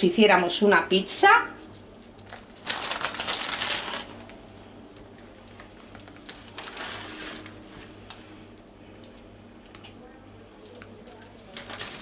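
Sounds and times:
plastic bag crinkling: 1.6 - 8.2, 10.5 - 12.0.

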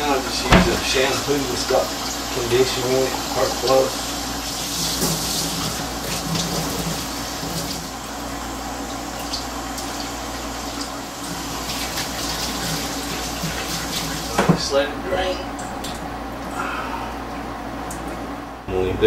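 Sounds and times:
hose water pouring into sink: 0.5 - 8.0, 9.2 - 14.6.

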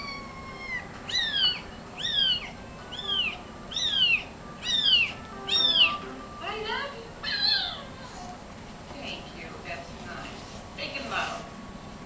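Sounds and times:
kitten mewing: 0.0 - 6.1, 7.2 - 8.3.

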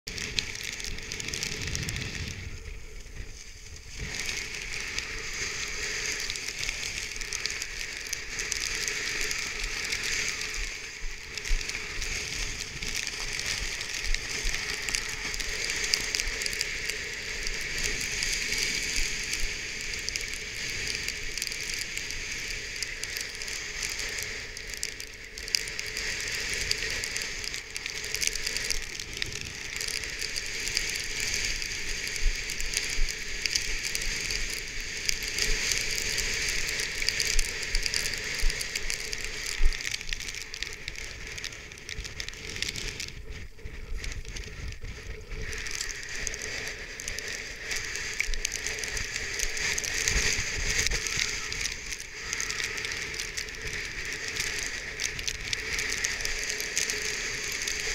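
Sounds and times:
kite canopy flapping: 0.0 - 57.9
strong wind on microphone: 0.1 - 21.2, 33.1 - 57.9.

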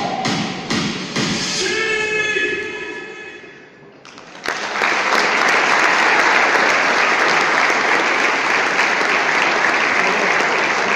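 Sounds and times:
audience applause: 4.0 - 10.9.

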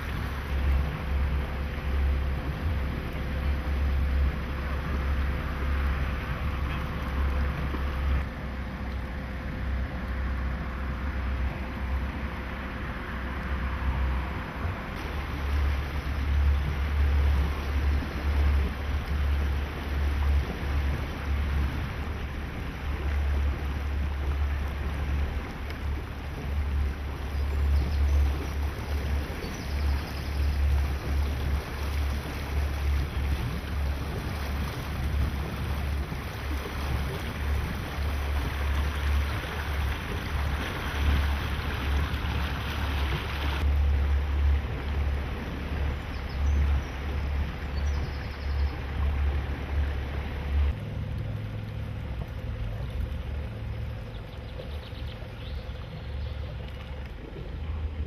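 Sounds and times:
water rushing along hull: 0.0 - 58.0
wind buffeting microphone: 9.6 - 50.8.

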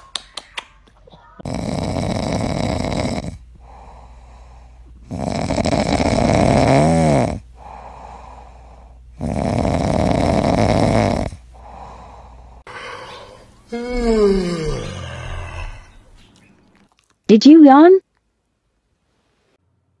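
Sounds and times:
dog snoring: 1.4 - 4.1, 5.0 - 8.5, 9.1 - 12.1
dog breathing: 7.5 - 16.3.

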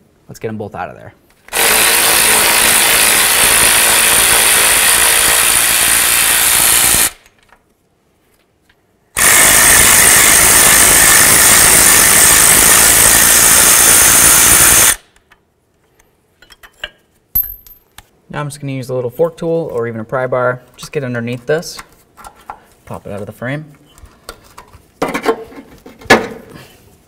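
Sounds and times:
power ratchet running: 1.5 - 7.2, 9.2 - 15.0.

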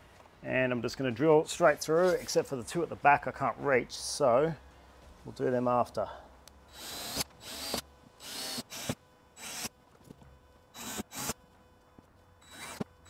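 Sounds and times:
cordless drill drilling plastic: 6.7 - 9.7, 10.7 - 11.4, 12.4 - 13.0.

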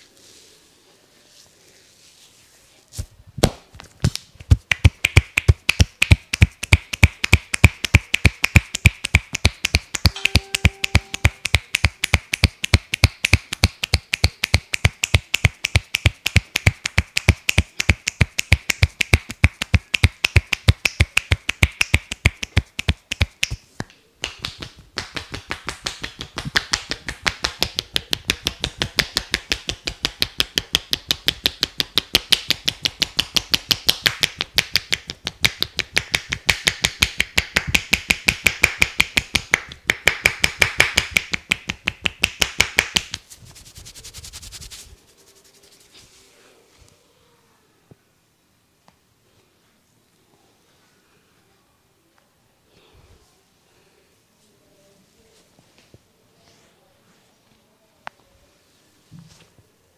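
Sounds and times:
hands striking head: 3.4 - 44.8.

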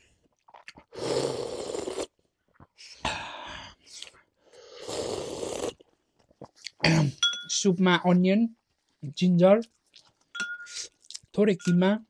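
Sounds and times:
soup slurping: 0.5 - 2.1, 4.7 - 5.8.

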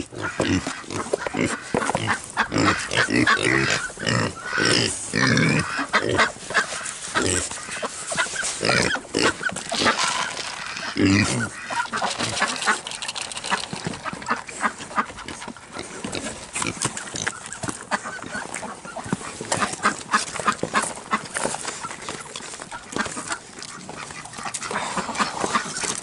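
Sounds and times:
pigs chewing and smacking: 0.0 - 26.0.

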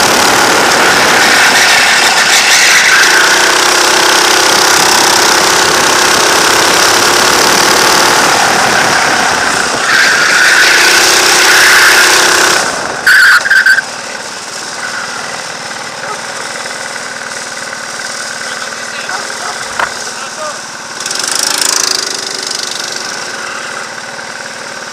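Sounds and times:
go-kart engine running hard: 0.0 - 24.9
high-pitched squeal: 0.6 - 3.6, 8.1 - 24.9.

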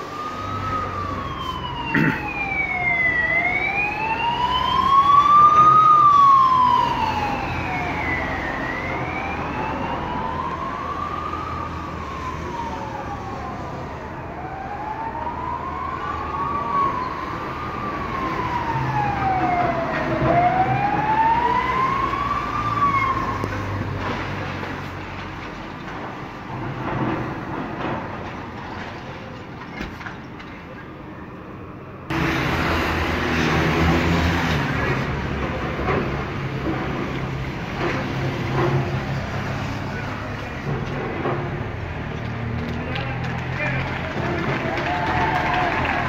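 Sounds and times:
siren wailing: 0.0 - 24.1
second siren: 0.0 - 24.6.

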